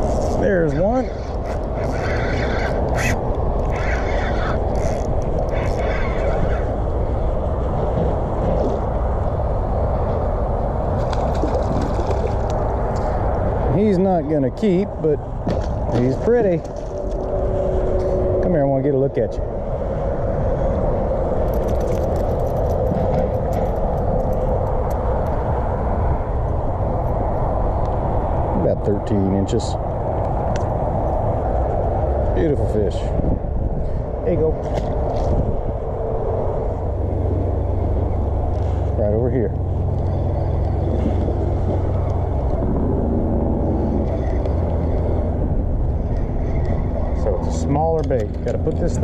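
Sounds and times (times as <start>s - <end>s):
wind rumbling on microphone: 0.0s - 49.0s
fishing lure clicks and rattles: 21.4s - 25.3s.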